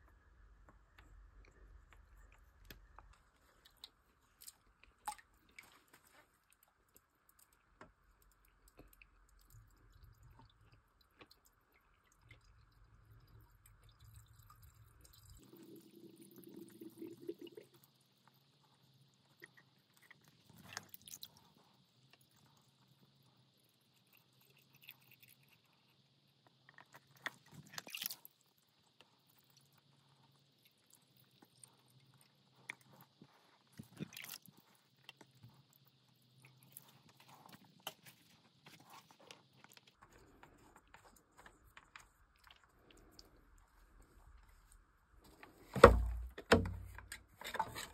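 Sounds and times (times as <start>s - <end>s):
water trickling and gurgling: 1.6s - 23.5s.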